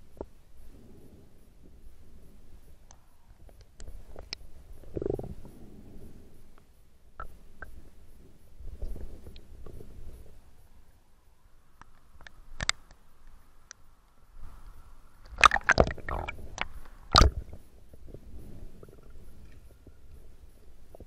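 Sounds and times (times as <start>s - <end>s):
water splashing: 15.2s - 17.6s
muffled underwater gurgling: 15.4s - 20.1s.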